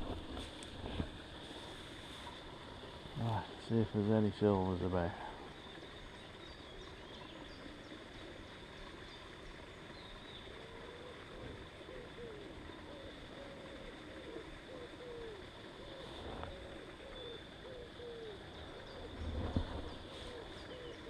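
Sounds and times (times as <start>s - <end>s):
faint steady hiss: 0.0s - 21.0s
small birds chirping: 3.2s - 10.9s, 14.9s - 21.0s
pigeon cooing: 10.4s - 21.0s.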